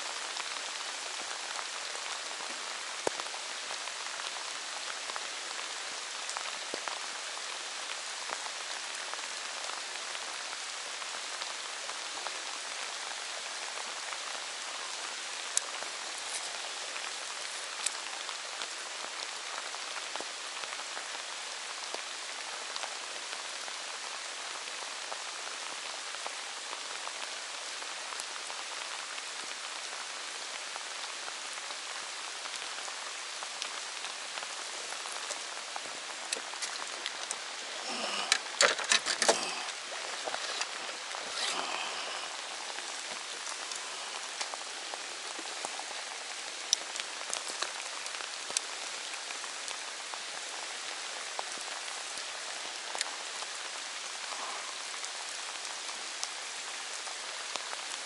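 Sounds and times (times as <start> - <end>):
steady rain hiss: 0.0 - 58.0
raindrop hits: 34.8 - 45.8.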